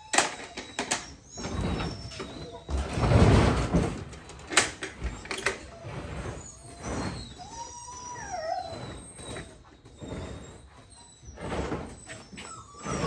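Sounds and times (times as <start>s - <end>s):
metal box scraping on truck bed: 1.4s - 4.2s, 4.9s - 7.6s, 8.7s - 13.0s.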